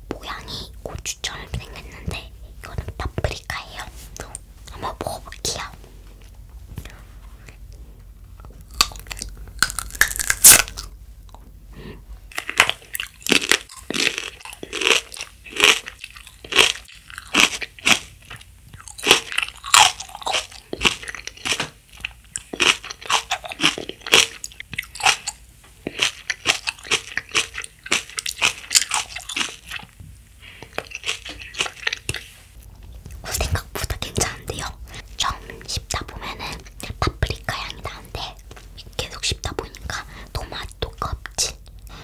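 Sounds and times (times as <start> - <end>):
watery chewing crunches: 8.4 - 10.9, 12.3 - 29.9, 30.6 - 32.3
crisp pepper bite crunch: 8.6 - 11.0, 12.3 - 29.9, 30.5 - 32.3.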